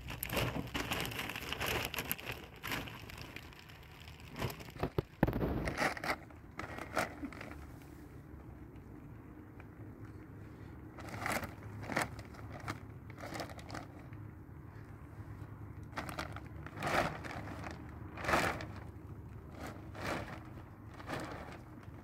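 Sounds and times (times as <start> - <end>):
plastic sheeting crinkling: 0.0 - 7.7, 11.0 - 14.2, 15.9 - 22.0.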